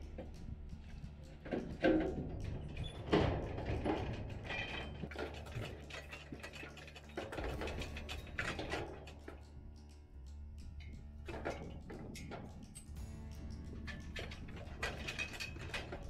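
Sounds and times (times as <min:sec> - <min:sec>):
metal gate clanks and rattles: 0:00.1 - 0:16.0
ratchet-like clicking: 0:04.3 - 0:16.0.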